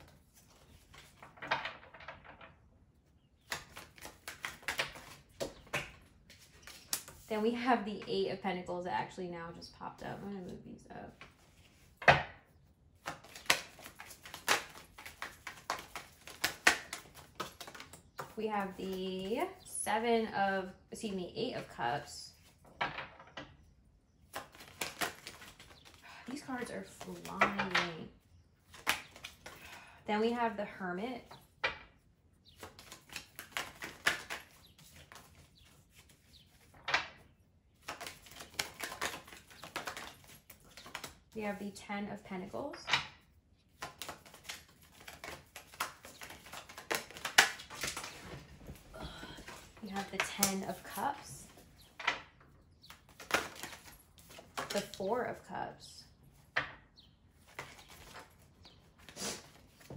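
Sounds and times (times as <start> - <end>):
cards being shuffled: 0.0 - 1.6, 3.4 - 7.3, 13.0 - 19.3, 24.3 - 27.8, 28.6 - 29.8, 32.6 - 37.0, 37.8 - 41.3, 43.7 - 52.1, 52.9 - 55.0, 57.4 - 59.9.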